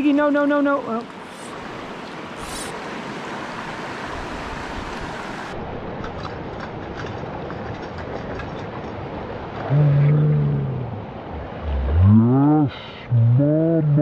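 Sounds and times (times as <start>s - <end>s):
creek rushing over stones: 1.0s - 6.6s.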